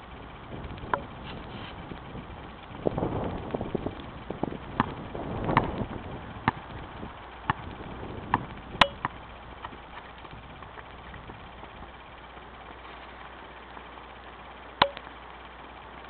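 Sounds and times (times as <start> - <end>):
basketball bouncing on pavement: 3.4 - 11.4.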